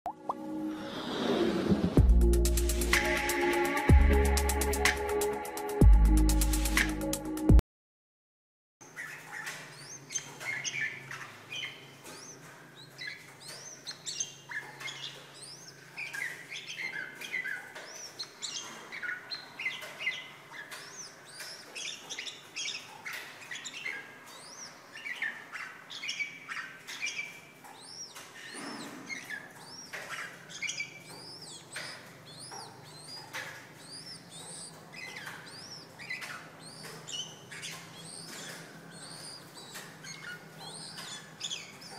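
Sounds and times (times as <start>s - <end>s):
bird singing chirps and whistles: 8.9s - 41.9s.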